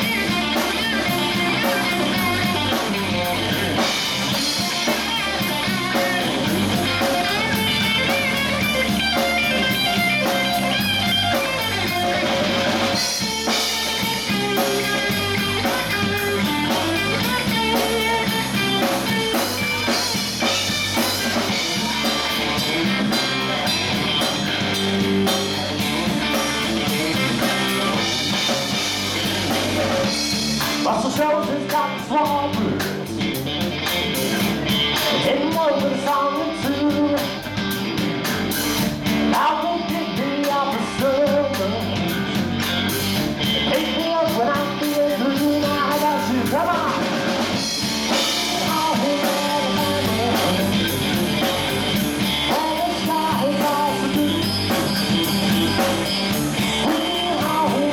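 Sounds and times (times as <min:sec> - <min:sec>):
bass guitar: 0:00.0 - 0:57.9
drum kit: 0:00.0 - 0:57.9
electric guitar: 0:00.0 - 0:57.9
man singing lead vocal: 0:30.8 - 0:33.0, 0:35.0 - 0:37.6, 0:39.3 - 0:42.4, 0:43.5 - 0:47.4, 0:48.3 - 0:51.0, 0:52.4 - 0:54.9, 0:56.8 - 0:57.9.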